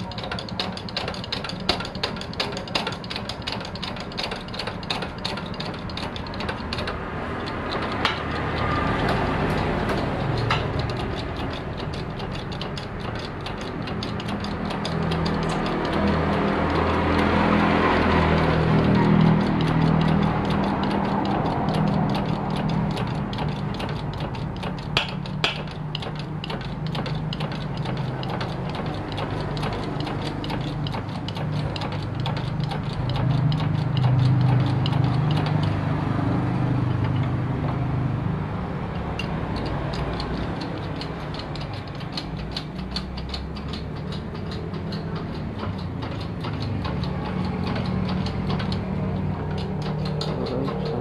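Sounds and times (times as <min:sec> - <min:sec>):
small metallic clicks: 0:00.0 - 0:51.0.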